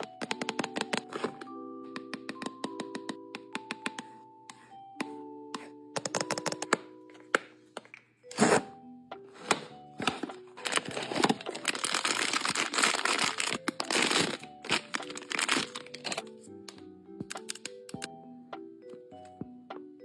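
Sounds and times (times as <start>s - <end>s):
soft background music: 0.0s - 20.0s
plastic pouch crinkling and tearing: 10.6s - 16.2s.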